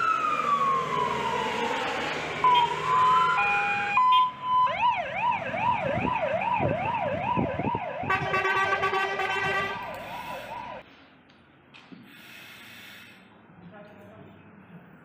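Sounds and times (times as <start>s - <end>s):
fire engine siren warbling: 0.0s - 10.8s
horn blast: 8.1s - 9.9s.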